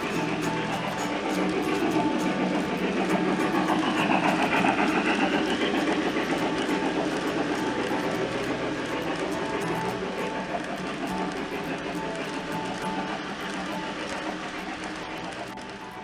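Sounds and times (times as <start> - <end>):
model train wheels on track: 0.0 - 16.0.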